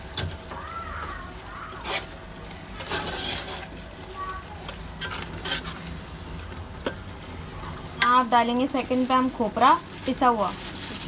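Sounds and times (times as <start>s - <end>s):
spoon scraping in pot: 1.8s - 2.2s, 2.8s - 3.8s, 5.0s - 6.0s.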